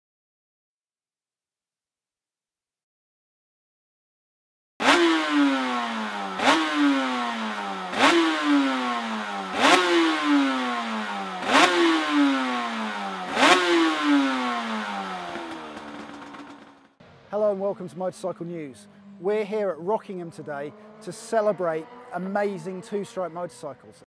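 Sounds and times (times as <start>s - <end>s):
motorcycle engine revving: 4.8s - 17.2s, 18.4s - 22.9s.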